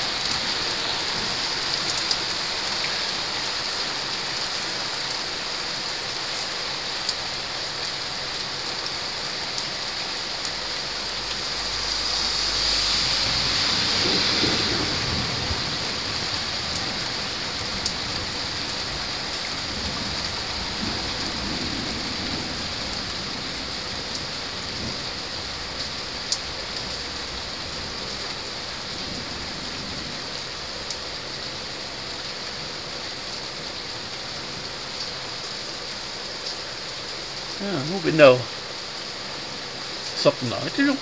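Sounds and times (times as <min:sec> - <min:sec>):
rain falling on roofs: 0:00.0 - 0:41.0
thunder rumbling: 0:11.7 - 0:18.6.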